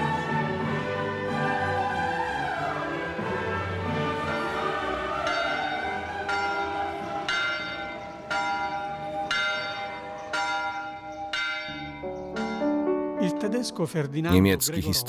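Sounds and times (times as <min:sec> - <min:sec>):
church bell tolling: 0:05.2 - 0:12.8.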